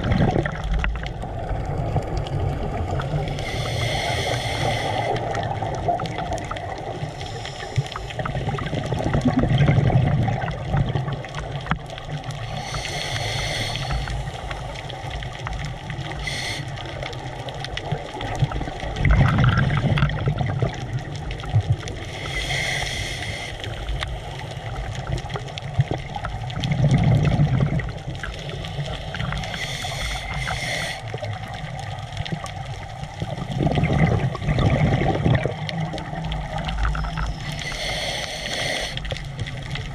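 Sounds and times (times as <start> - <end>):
exhaled bubbles gurgling: 0.0 - 39.9
hissing regulator inhalation: 3.3 - 5.4, 12.4 - 14.8, 16.2 - 17.1, 22.1 - 24.0, 28.3 - 31.4, 36.8 - 39.3.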